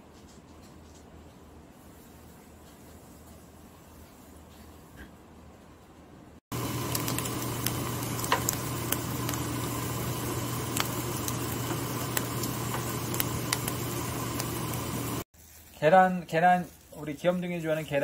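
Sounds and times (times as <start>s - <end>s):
eggs sizzling in a pan: 6.5s - 18.0s.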